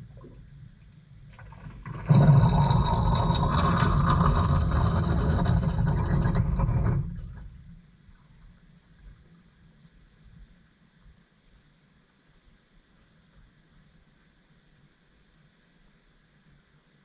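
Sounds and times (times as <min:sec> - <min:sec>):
water rushing into washing machine: 0:01.4 - 0:07.6.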